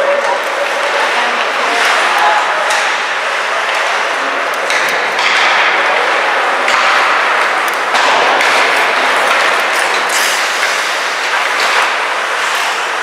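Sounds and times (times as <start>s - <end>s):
sticks clacking on puck: 0.0s - 12.7s
puck thudding off boards: 4.6s - 10.1s.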